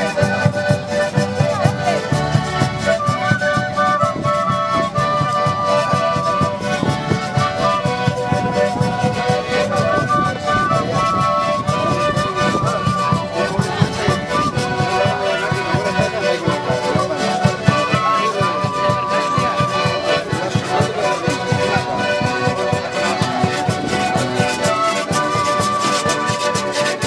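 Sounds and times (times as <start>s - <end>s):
accordion melody: 0.0s - 27.0s
upright bass: 0.0s - 27.0s
steady beat: 10.6s - 27.0s.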